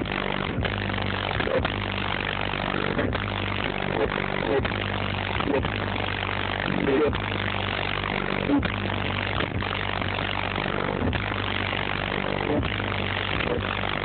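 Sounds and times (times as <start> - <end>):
loud bass-heavy music: 0.0 - 14.0.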